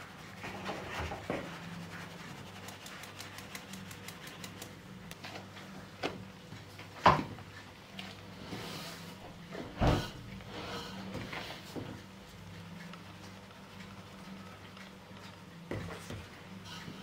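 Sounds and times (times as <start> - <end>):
flour sieve tapping and rustling: 0.0 - 8.1.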